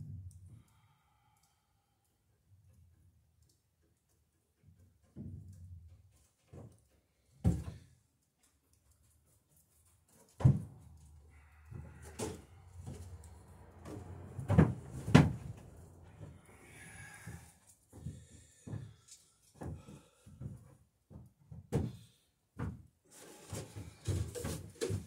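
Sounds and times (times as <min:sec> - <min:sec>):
knocks and clunks on wood: 0:07.4 - 0:07.9, 0:10.3 - 0:16.4, 0:19.6 - 0:22.9.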